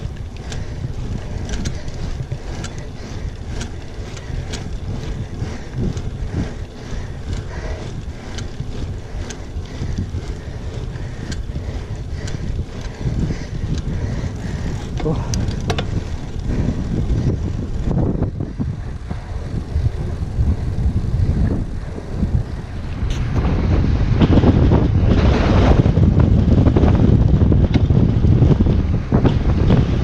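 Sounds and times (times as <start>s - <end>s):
rumble of bike riding: 0.0s - 30.0s
wind buffeting microphone: 0.0s - 30.0s.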